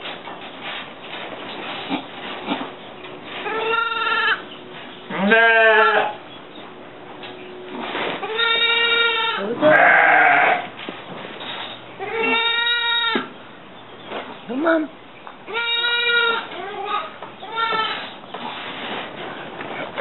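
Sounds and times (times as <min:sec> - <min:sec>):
goat bleating: 0:03.4 - 0:04.4, 0:05.1 - 0:06.2, 0:08.2 - 0:10.8, 0:12.0 - 0:13.3, 0:15.5 - 0:18.1.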